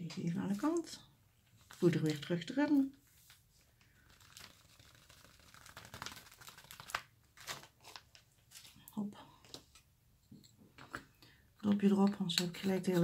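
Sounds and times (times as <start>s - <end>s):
small crackles and ticks: 1.5s - 7.0s
plastic sheet crinkling: 1.5s - 8.8s.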